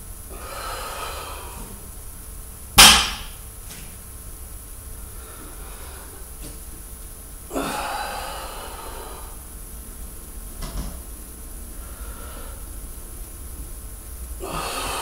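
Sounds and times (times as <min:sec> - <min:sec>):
person breathing out heavily: 0:00.3 - 0:01.8, 0:11.8 - 0:12.7, 0:14.4 - 0:15.0.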